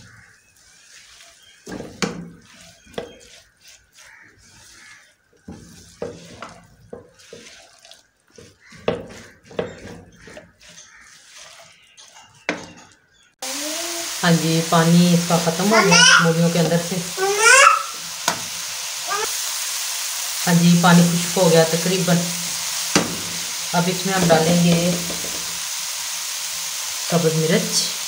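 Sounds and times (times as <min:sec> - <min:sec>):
spatula scraping frying pan: 0:00.0 - 0:13.1, 0:20.7 - 0:27.8
soft sizzle: 0:00.0 - 0:28.0
loud steady hiss: 0:13.4 - 0:28.0.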